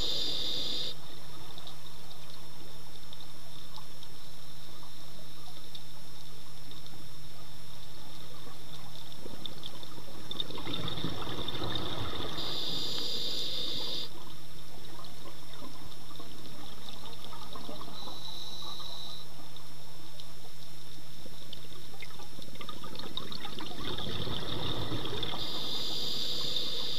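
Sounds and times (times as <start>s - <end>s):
regulator inhale hiss: 0.0s - 1.0s, 12.3s - 14.2s, 25.3s - 26.9s
steady low hum: 0.0s - 22.5s
exhaled bubbles rushing underwater: 9.3s - 12.7s, 22.0s - 25.8s.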